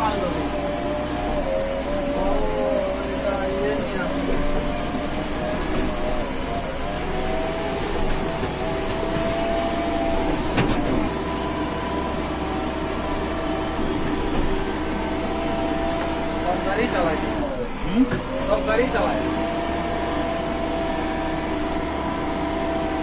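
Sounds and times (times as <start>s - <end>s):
diesel engine running: 0.0s - 23.0s.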